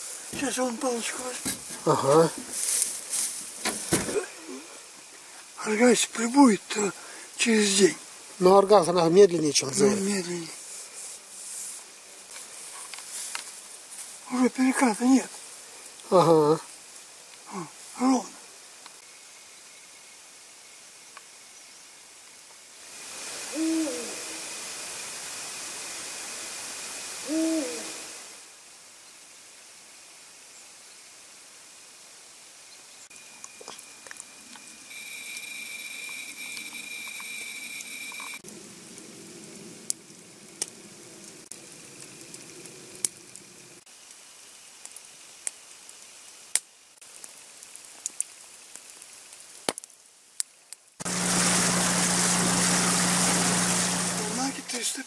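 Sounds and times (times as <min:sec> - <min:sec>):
owl hooting: 0:23.5 - 0:24.5, 0:27.2 - 0:28.1
outboard motor running: 0:51.1 - 0:54.8.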